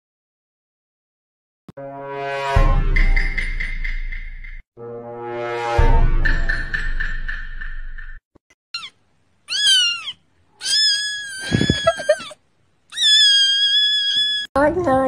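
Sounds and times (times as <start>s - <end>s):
kitten meowing: 8.8s - 14.5s.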